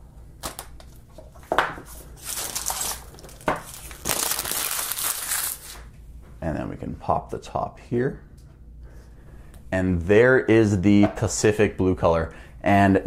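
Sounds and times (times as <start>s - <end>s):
plastic wrap crinkling: 2.0s - 5.9s.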